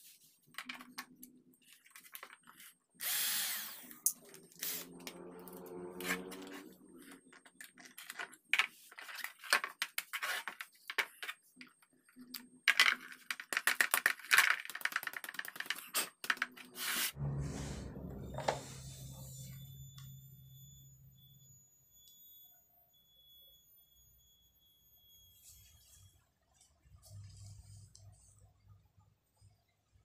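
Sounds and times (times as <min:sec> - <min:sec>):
cordless drill whirring: 0:03.0 - 0:04.9
steady low hum: 0:17.2 - 0:21.5.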